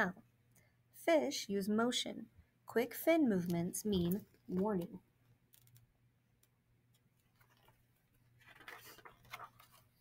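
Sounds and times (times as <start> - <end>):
paper pages rustling: 6.9 - 10.0.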